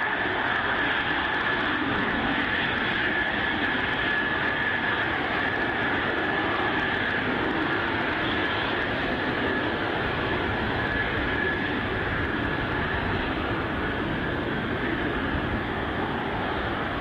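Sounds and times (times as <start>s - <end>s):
jet engine with high whine: 0.0s - 17.0s.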